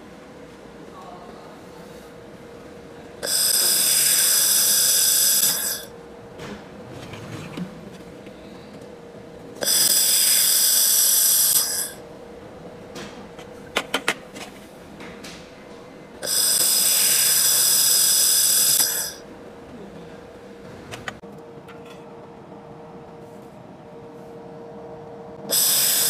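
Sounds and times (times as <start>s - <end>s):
faint steady hum: 0.0s - 26.0s
laser welder buzzing whine: 3.2s - 6.2s, 9.6s - 12.0s, 16.2s - 19.3s, 25.4s - 26.0s.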